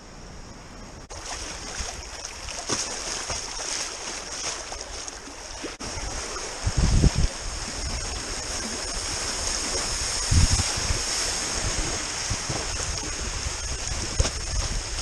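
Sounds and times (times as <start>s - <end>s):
river water rushing and splashing: 1.1s - 15.0s.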